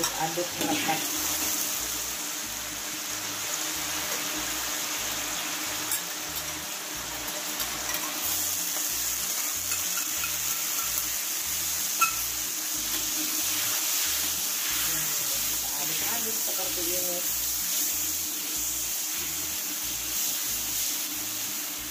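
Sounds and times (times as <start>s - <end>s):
sauce sizzling in a wok: 0.0s - 21.9s
metal spatula stirring: 9.4s - 11.1s.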